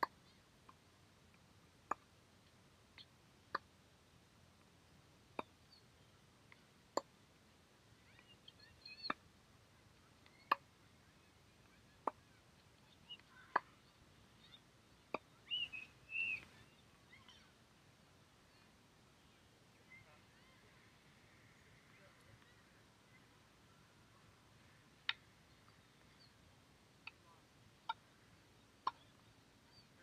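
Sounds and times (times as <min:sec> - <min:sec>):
birds calling: 0:07.9 - 0:09.2, 0:09.8 - 0:17.7, 0:18.4 - 0:30.0.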